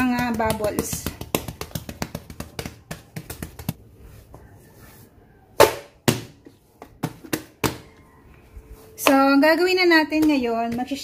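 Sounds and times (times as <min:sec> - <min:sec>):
hand slapping dough: 0:00.0 - 0:03.8, 0:05.6 - 0:07.9, 0:09.0 - 0:11.0
hands patting bread dough: 0:00.0 - 0:03.8, 0:09.0 - 0:11.0.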